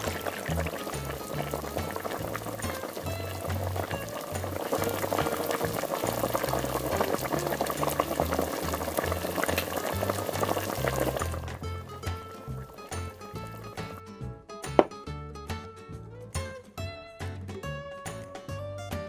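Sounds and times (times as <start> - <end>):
soup bubbling and crackling: 0.0 - 14.1
background music with plodding bass: 0.0 - 19.0.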